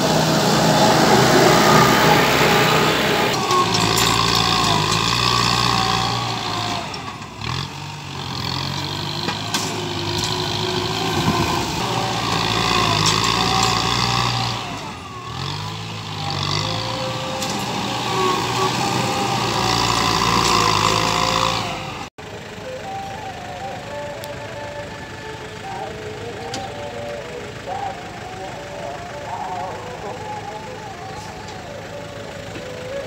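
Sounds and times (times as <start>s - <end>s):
tractor engine revving under load: 0.0s - 33.0s.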